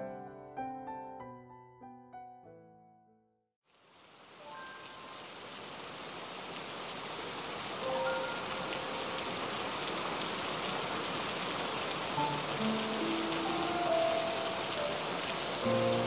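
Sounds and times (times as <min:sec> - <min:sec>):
steady rain: 0:03.6 - 0:16.0
soft music notes: 0:12.2 - 0:16.0.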